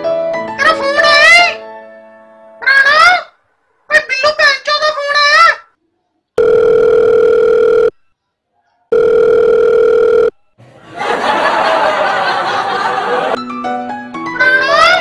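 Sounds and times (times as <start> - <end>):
telephone ringback tone beeps: 6.4 - 8.1, 8.9 - 10.5.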